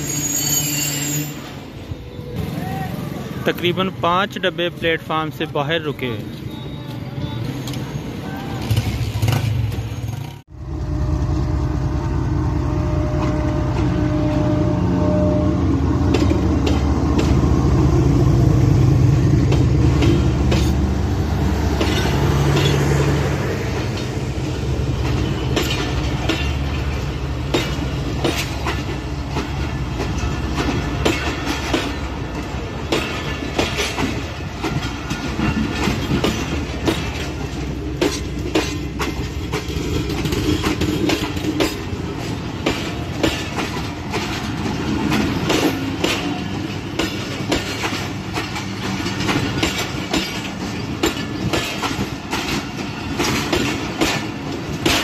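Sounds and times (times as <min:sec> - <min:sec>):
train wheels clacking on rail joints: 0:16.0 - 0:17.6, 0:19.4 - 0:55.0.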